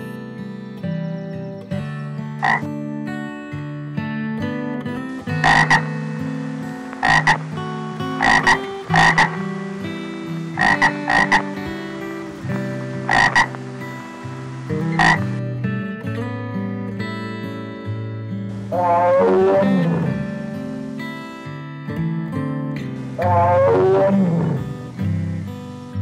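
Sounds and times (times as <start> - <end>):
frog croaking: 2.4 - 2.7, 5.1 - 15.5, 18.5 - 21.2, 23.0 - 25.5.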